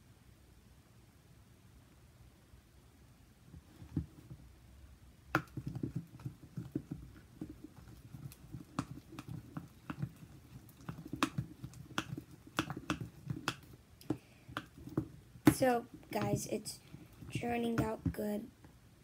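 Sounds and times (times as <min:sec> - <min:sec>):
slime squelching: 0:05.3 - 0:18.5.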